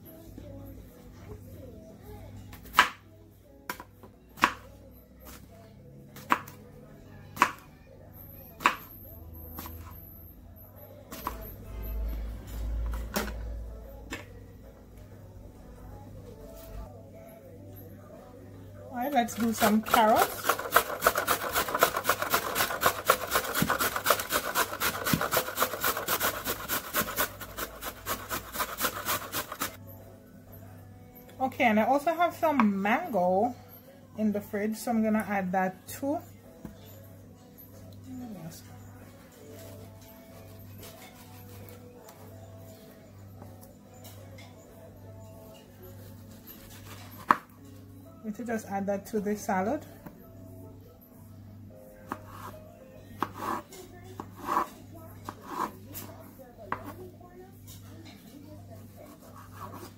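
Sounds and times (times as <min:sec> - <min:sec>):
carrot grated on metal grater: 0:19.5 - 0:29.8
knife chopping on cutting board: 0:53.2 - 0:53.6, 0:54.2 - 0:54.7, 0:55.3 - 0:55.7, 0:56.7 - 0:57.0.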